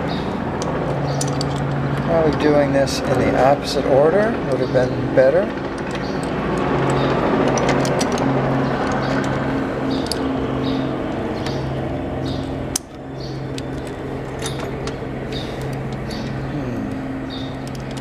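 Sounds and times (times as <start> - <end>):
steady machine hum: 0.0 - 18.0
small metallic clicks and taps: 0.6 - 2.5, 5.6 - 10.2.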